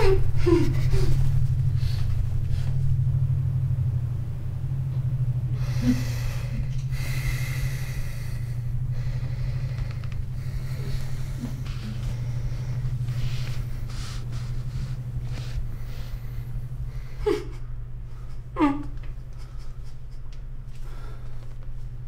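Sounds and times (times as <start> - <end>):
low droning hum: 0.0 - 22.0
person breathing heavily through nose: 5.6 - 18.5.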